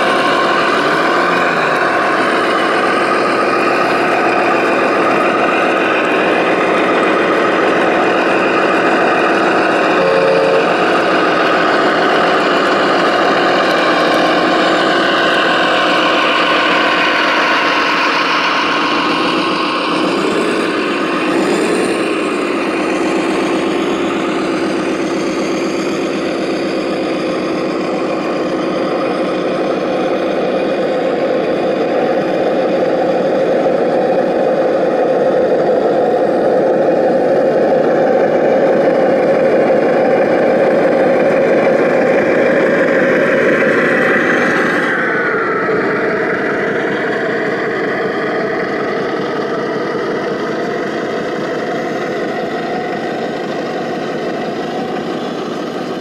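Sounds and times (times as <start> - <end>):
model diesel engine idling: 0.0 - 56.0.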